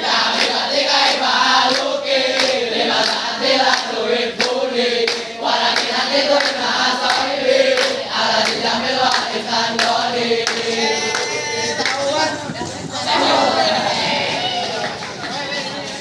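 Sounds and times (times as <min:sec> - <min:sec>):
group of boys chanting: 0:00.0 - 0:16.0.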